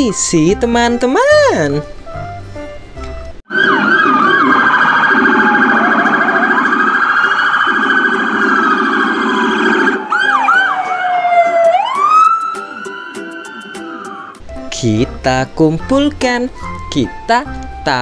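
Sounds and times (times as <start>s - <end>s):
police sirens wailing and yelping: 3.5s - 14.4s.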